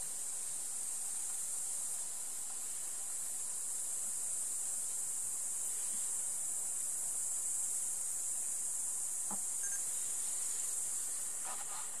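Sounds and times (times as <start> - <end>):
chorus of crickets: 0.0 - 12.0.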